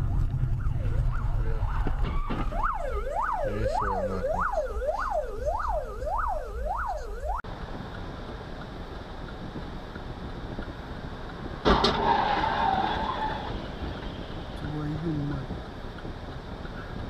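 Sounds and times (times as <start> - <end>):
emergency siren yelping: 0.0 - 7.4
engine and road rumble: 0.0 - 17.0.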